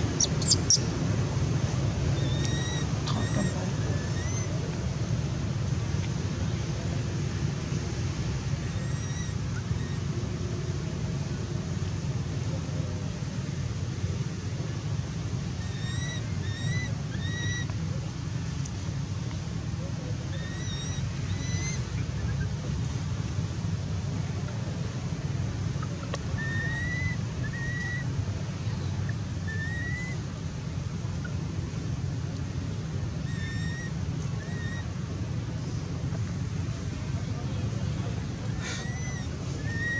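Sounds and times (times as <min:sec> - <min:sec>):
low wind rumble: 0:00.0 - 0:39.9
infant monkey high cries: 0:02.2 - 0:04.5, 0:08.8 - 0:10.0, 0:15.6 - 0:17.6, 0:20.3 - 0:22.5, 0:26.4 - 0:28.1, 0:29.5 - 0:30.2, 0:33.2 - 0:34.9, 0:38.6 - 0:39.9.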